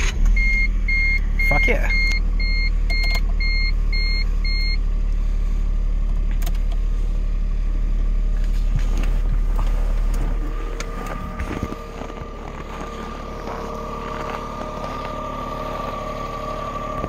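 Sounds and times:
small car engine idling: 0:00.0 - 0:17.0
in-car warning chime beeping: 0:00.3 - 0:04.9, 0:10.0 - 0:17.0.

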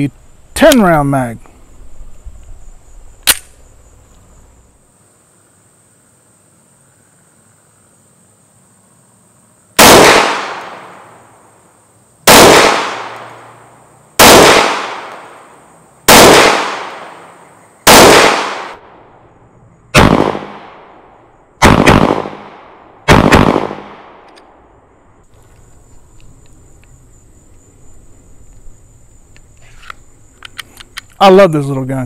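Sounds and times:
pistol shots: 0:09.8 - 0:11.0, 0:12.2 - 0:13.5, 0:14.2 - 0:15.4, 0:16.1 - 0:17.2, 0:17.8 - 0:18.8, 0:20.0 - 0:20.8, 0:21.6 - 0:24.2.

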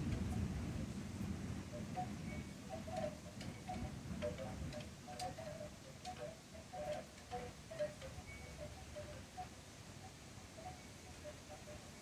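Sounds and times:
storm wind rumble: 0:00.0 - 0:04.8
faint tinkling notes: 0:01.7 - 0:12.0
light ticks: 0:02.8 - 0:09.1.

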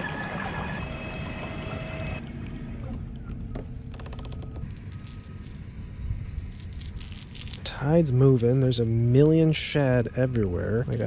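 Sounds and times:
fishing tackle rattles and clicks: 0:03.8 - 0:05.7, 0:06.4 - 0:07.8.

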